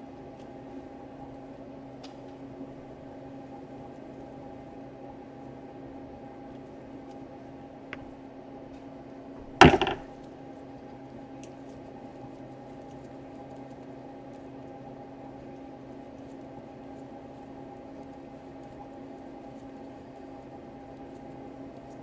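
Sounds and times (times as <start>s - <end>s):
sharp clatter of hard knocks: 9.4s - 10.1s.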